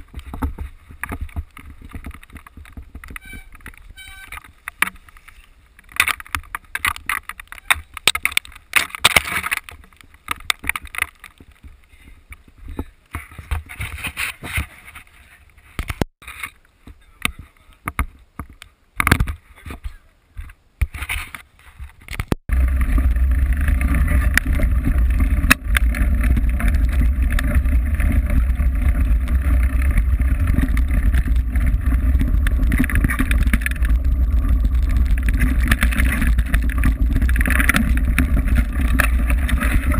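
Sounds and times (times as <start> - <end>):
bike rattling over rough trail: 0.0 - 19.9, 20.9 - 39.9
tyres on dirt: 0.0 - 39.9
wind buffeting microphone: 22.5 - 39.9.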